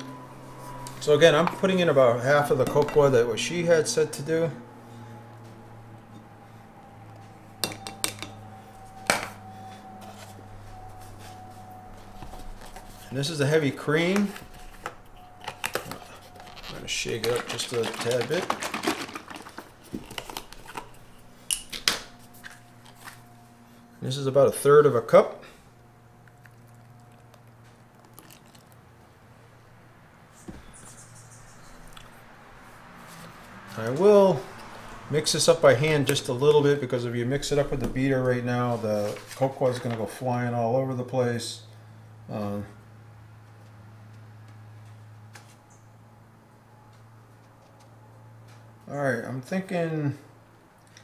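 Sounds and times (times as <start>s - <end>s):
low hum: 0.0s - 40.7s
cream pouring: 27.9s - 28.8s.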